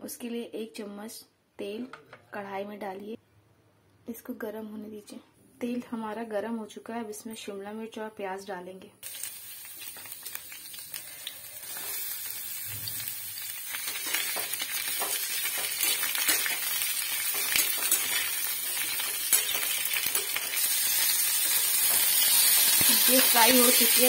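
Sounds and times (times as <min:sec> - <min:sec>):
vegetables sizzling in oil: 0:09.0 - 0:24.0.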